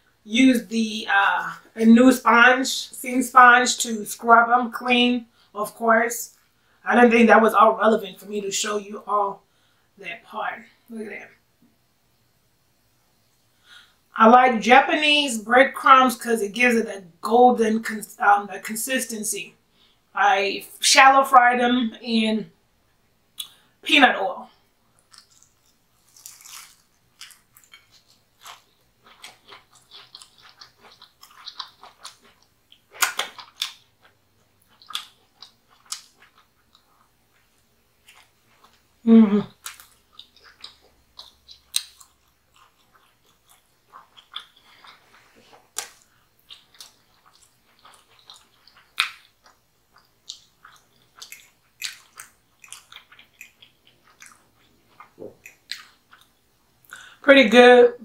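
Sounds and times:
crunchy chewing of fried chicken: 24.7s - 57.1s.

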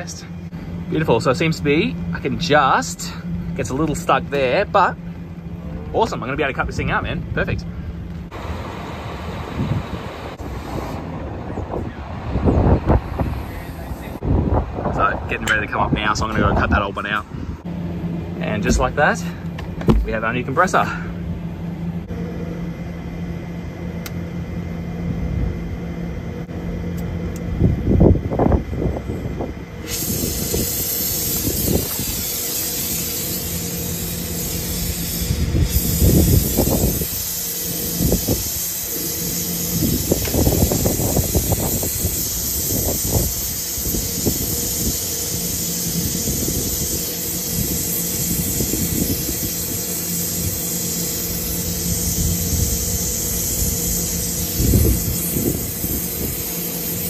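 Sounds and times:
torch flame hissing: 29.8s - 57.0s.

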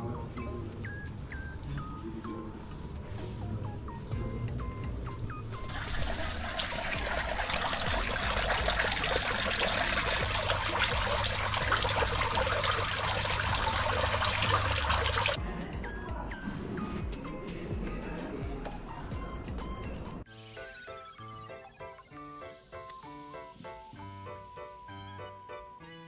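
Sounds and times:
fountain water splashing into pond: 5.7s - 15.4s.

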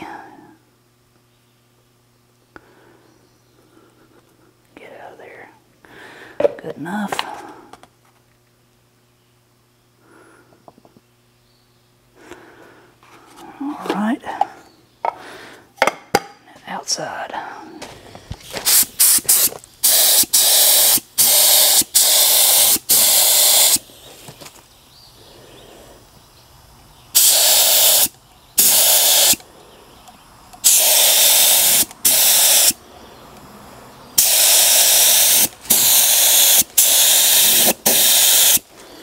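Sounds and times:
paint spray gun hissing bursts: 18.5s - 23.9s, 27.2s - 29.4s, 30.6s - 32.8s, 34.2s - 38.7s.

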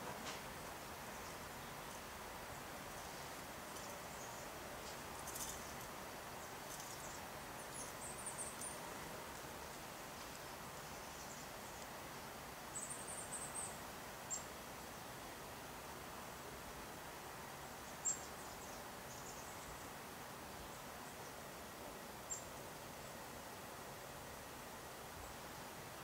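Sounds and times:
faint outdoor hiss: 0.0s - 26.0s
small birds chirping: 1.0s - 11.9s, 12.7s - 15.1s, 17.8s - 19.9s.

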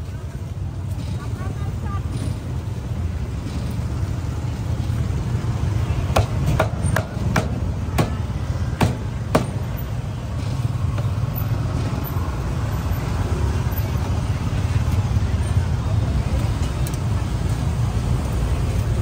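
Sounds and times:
low rumble of street traffic: 0.0s - 19.0s.

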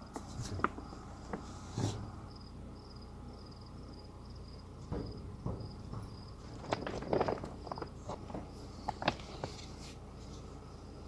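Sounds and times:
crickets chirping: 0.0s - 11.0s
soft knocks: 4.8s - 8.5s.

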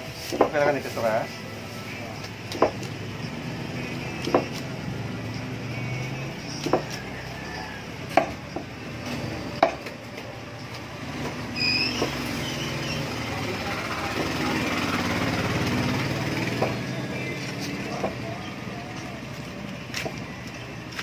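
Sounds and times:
traffic noise: 0.0s - 21.0s
knife chopping on wooden block: 4.2s - 4.6s, 6.6s - 7.0s, 8.1s - 8.7s, 9.6s - 9.9s.

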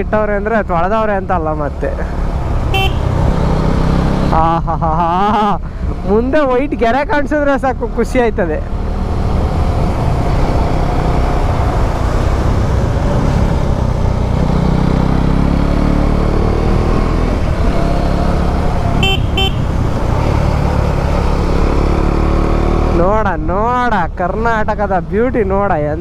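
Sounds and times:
horn toots: 2.7s - 3.2s, 19.0s - 19.8s
wind rush: 8.8s - 14.6s.

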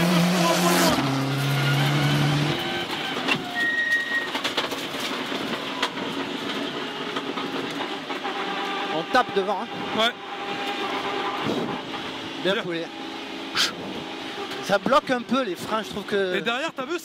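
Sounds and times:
rally car engine passing at speed: 0.0s - 3.4s.

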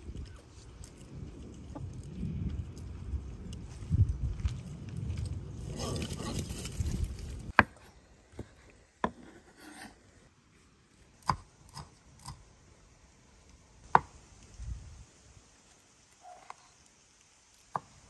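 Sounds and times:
rustling scraping noise: 5.2s - 7.5s.

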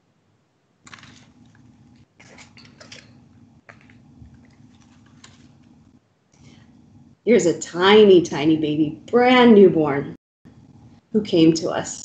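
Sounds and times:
steady low hum: 0.0s - 12.0s
pages rustling: 0.8s - 5.8s.

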